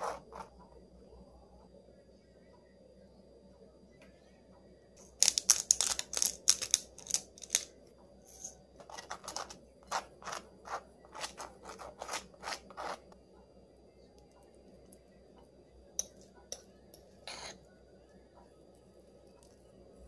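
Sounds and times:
fork scraping across toast: 0:00.0 - 0:00.5, 0:08.3 - 0:13.2, 0:17.3 - 0:17.6
pepper grinder grinding: 0:05.0 - 0:07.7, 0:08.8 - 0:13.1.

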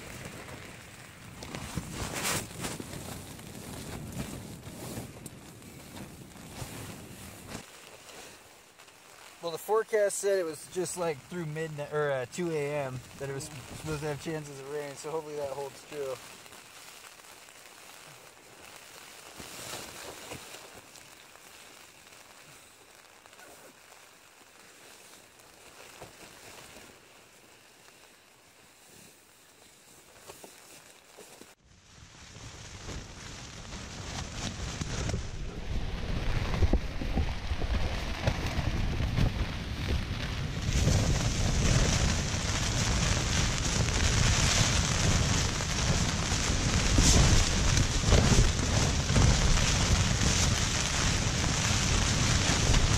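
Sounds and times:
rain pattering on a tent: 0:00.0 - 0:52.9
tent fabric rustling: 0:00.0 - 0:52.9
wind gusting: 0:34.3 - 0:52.9.

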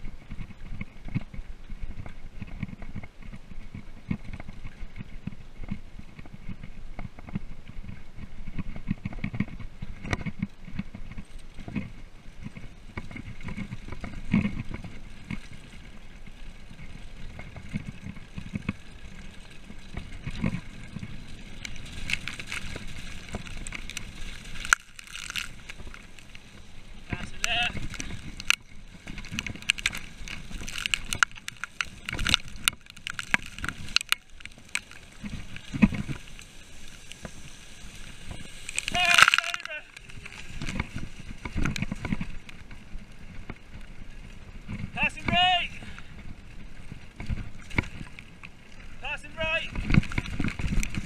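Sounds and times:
mountain bike rattling over gravel: 0:00.0 - 0:51.0.

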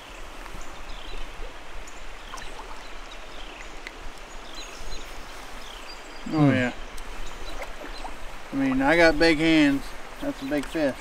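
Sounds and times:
creek water running over rocks: 0:00.0 - 0:11.0
bird chirping: 0:01.9 - 0:08.9.

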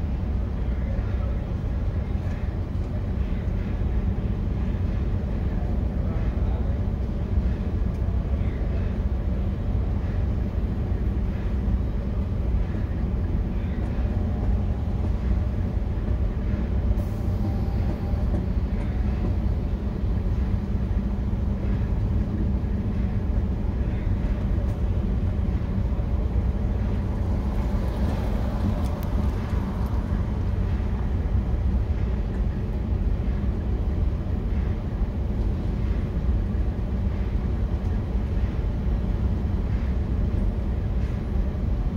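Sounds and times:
vehicle engine idling: 0:00.0 - 0:41.9.

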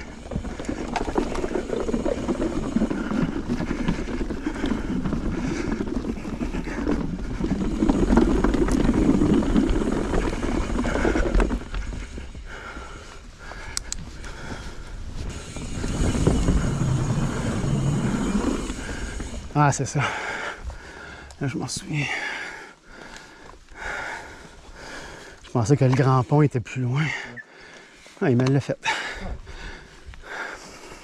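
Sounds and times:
tyres clattering on wooden boardwalk: 0:00.0 - 0:22.3
mountain bike rolling: 0:00.0 - 0:31.0.

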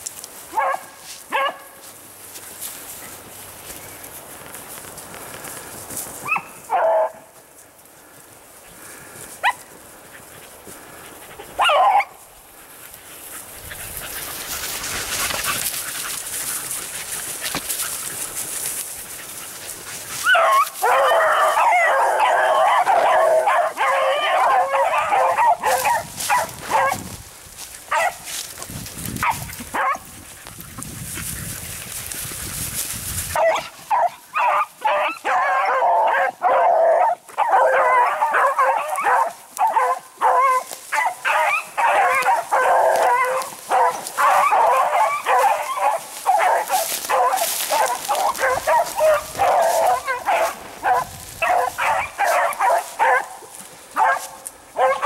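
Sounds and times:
hounds baying: 0:09.4 - 0:27.1, 0:27.9 - 0:28.4, 0:29.2 - 0:30.6, 0:33.3 - 0:55.0.

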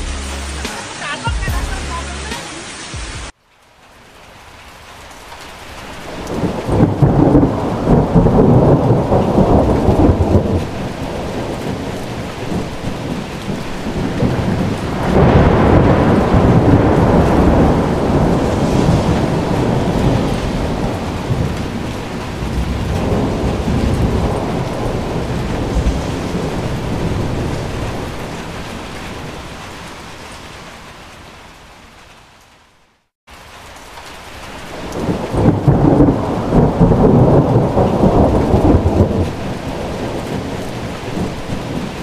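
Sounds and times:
heavy rainstorm: 0:00.0 - 0:42.0
deep rumble: 0:22.4 - 0:27.8.

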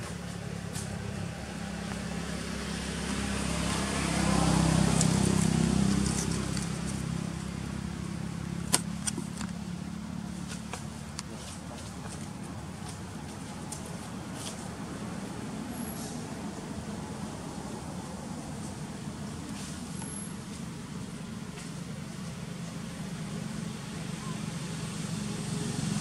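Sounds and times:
vehicle passing by: 0:00.0 - 0:09.0, 0:23.8 - 0:26.0.

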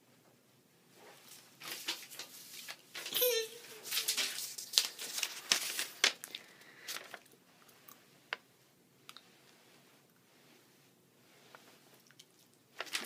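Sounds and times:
paper rustling and crinkling: 0:01.1 - 0:07.4, 0:12.4 - 0:13.0.

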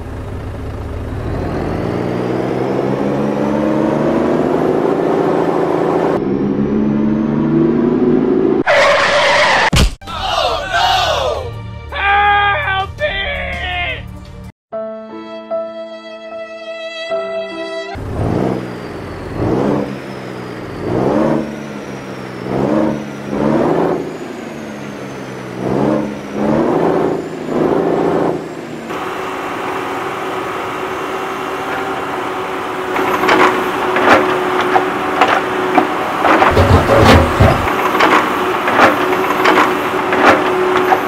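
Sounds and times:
vehicle engine revving: 0:00.0 - 0:09.6, 0:18.0 - 0:41.0
sharp clicks and knocks: 0:33.0 - 0:41.0.

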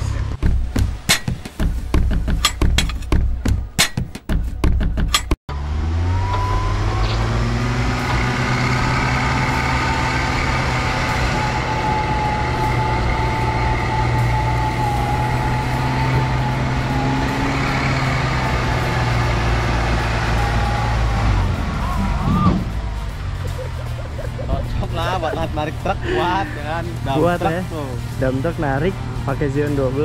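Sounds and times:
winch motor whine: 0:05.5 - 0:22.6
low engine drone: 0:05.5 - 0:30.0.

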